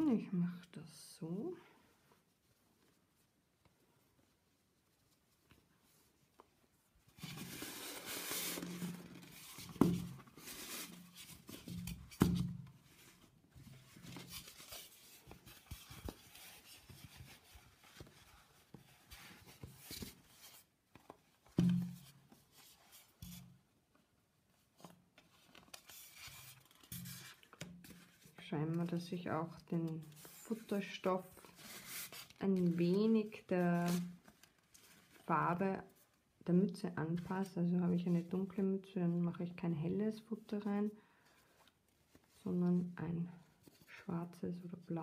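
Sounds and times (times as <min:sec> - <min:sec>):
fabric rustling against foam: 0:01.9 - 0:23.6.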